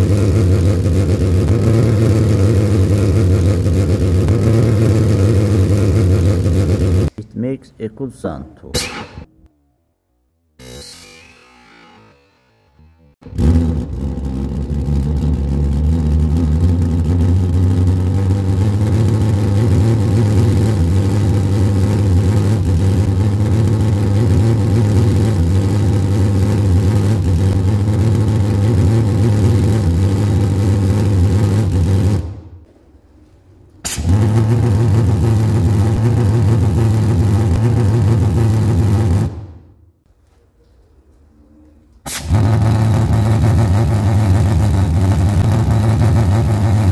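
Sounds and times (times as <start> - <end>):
sharp click: 8.7 - 9.3.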